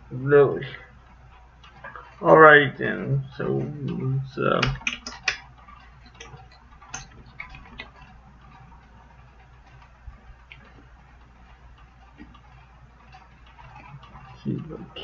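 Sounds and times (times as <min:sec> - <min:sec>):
plastic toy parts clicking: 0:04.5 - 0:08.7.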